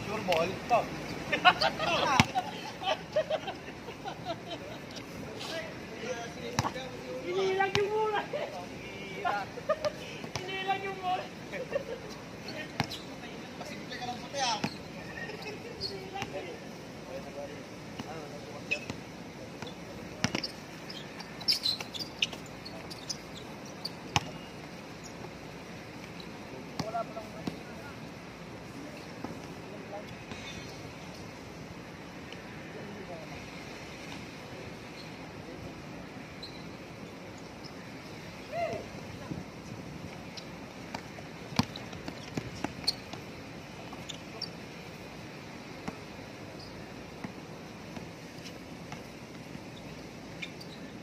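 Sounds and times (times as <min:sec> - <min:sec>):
steady background hiss: 0:00.0 - 0:51.0
shoe squeaks: 0:12.1 - 0:16.2, 0:18.6 - 0:19.0, 0:19.6 - 0:25.3, 0:34.9 - 0:35.2, 0:36.4 - 0:36.8, 0:40.2 - 0:40.6, 0:41.6 - 0:43.2, 0:43.8 - 0:44.6, 0:46.5 - 0:46.9, 0:49.6 - 0:51.0
basketball bouncing: 0:40.9 - 0:43.1.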